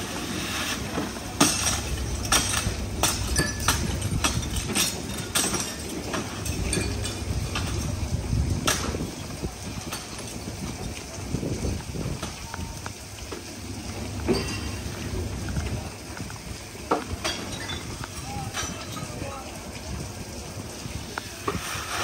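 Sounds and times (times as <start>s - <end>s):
steady low rumble: 1.3s - 21.2s
hand tools knocking and clinking: 1.4s - 7.8s.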